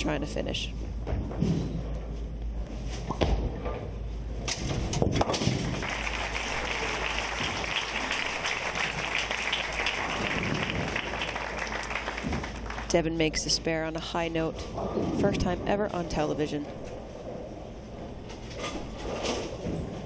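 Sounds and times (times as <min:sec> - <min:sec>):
crowd applauding: 0:05.6 - 0:13.0.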